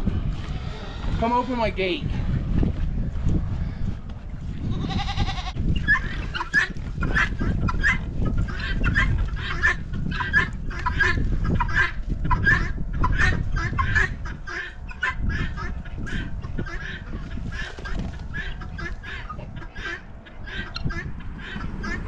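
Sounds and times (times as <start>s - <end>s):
low rumble: 0.0s - 22.0s
goat bleating: 4.6s - 5.6s
guinea fowl calling: 5.1s - 22.0s.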